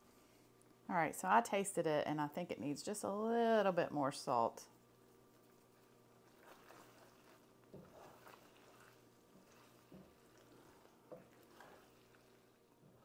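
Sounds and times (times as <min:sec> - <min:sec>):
low steady hum: 0:00.0 - 0:13.0
spatula scraping food in skillet: 0:05.2 - 0:12.7.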